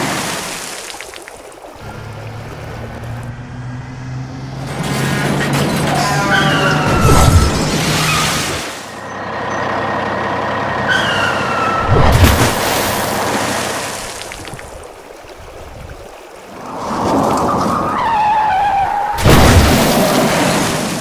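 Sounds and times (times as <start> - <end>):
short falling squeal: 5.9 - 9.7, 10.8 - 12.1.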